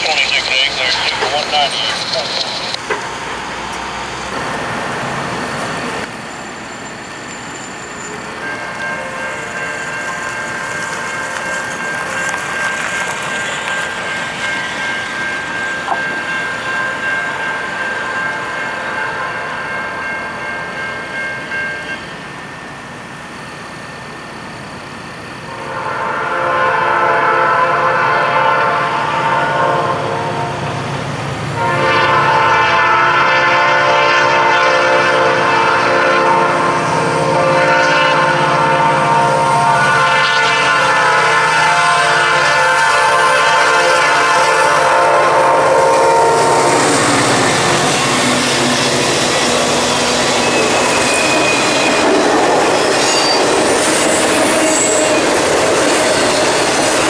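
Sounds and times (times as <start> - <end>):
locomotive horn blowing: 25.5 - 30.7, 31.6 - 46.9.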